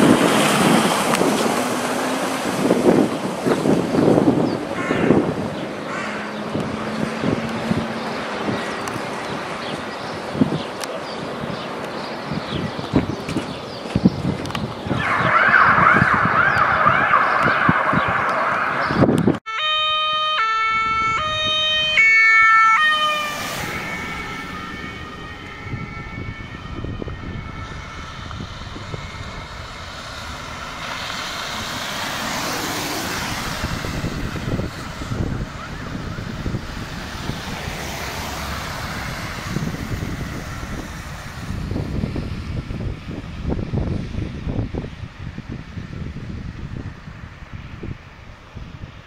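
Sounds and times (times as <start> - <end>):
passing traffic tyre noise: 0.0 - 49.0
ambulance two-tone siren: 14.9 - 31.7, 32.4 - 40.9.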